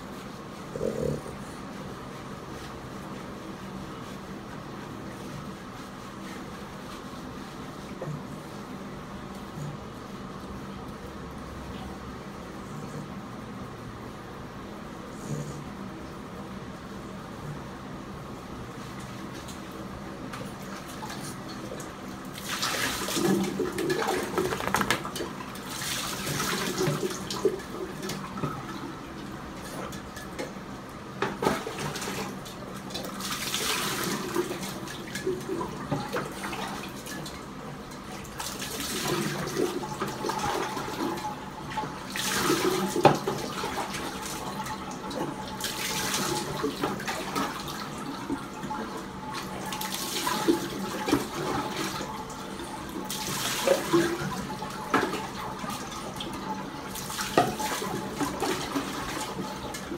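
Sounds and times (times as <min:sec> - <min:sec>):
water splashing in sink: 0:20.4 - 0:30.6, 0:31.2 - 0:59.9.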